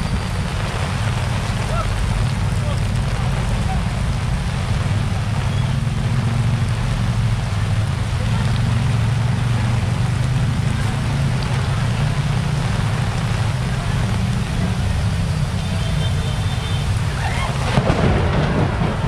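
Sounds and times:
heavy rain pouring: 0.0 - 19.0
faint voices: 1.6 - 4.2, 9.9 - 18.9.

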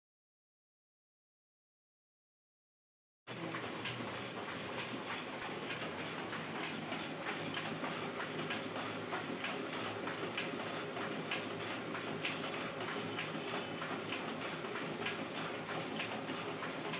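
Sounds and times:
printing press clatter and hiss: 3.3 - 16.9
printing press clicking: 3.3 - 16.9.

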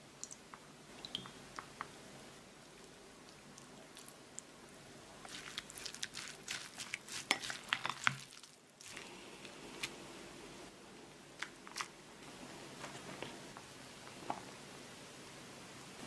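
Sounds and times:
rice squishing: 5.2 - 10.0.

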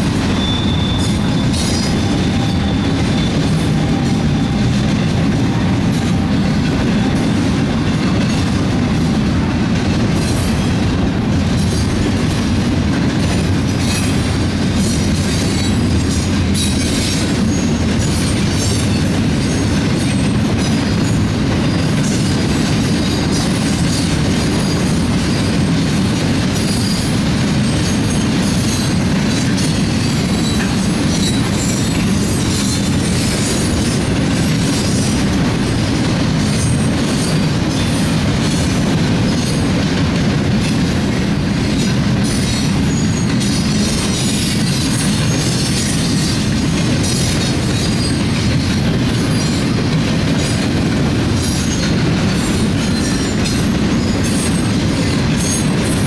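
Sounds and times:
steel wheels rumbling on rail: 0.0 - 56.0
high squeals and clicks: 0.2 - 5.2.

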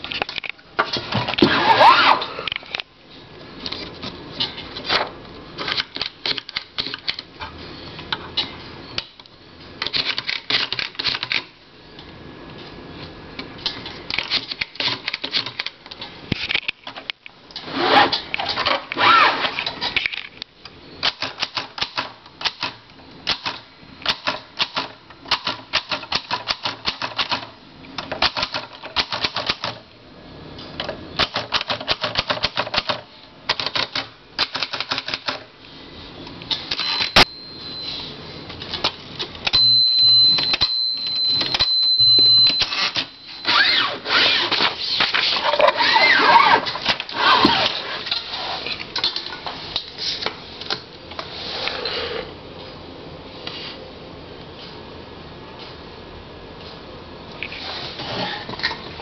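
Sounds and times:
typewriter keystrokes: 21.0 - 27.5, 31.2 - 35.4.

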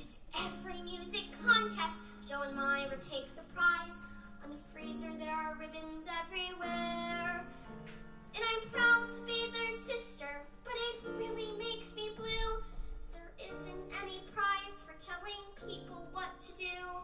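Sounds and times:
girl singing into a microphone: 0.0 - 17.0.

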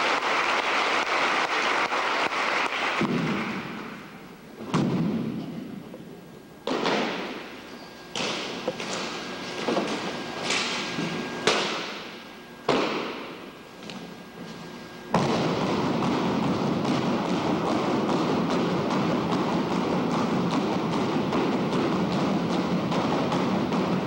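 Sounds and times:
spectators applauding: 0.0 - 3.7.

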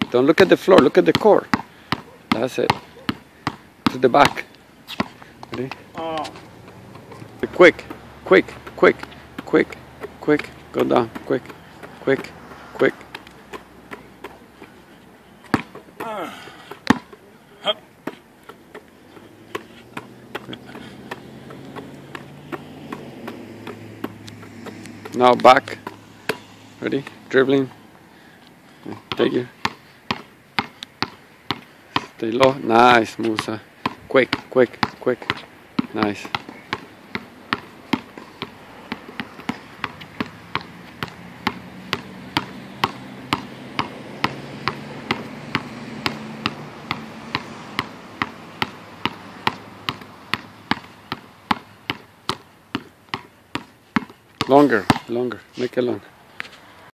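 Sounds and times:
basketball bouncing on hard court: 0.0 - 12.4, 13.1 - 14.8, 15.4 - 17.2, 18.0 - 27.2, 29.0 - 32.6, 33.2 - 55.2.

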